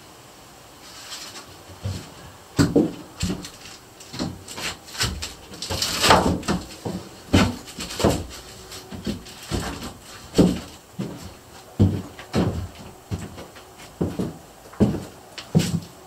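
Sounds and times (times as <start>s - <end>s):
board scraping: 0.8s - 15.9s
wooden boards knocking: 2.6s - 15.9s.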